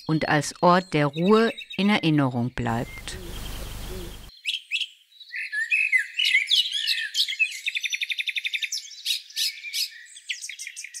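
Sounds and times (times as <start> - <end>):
songbirds singing: 0.0 - 11.0
fast even bird trill: 2.8 - 4.3.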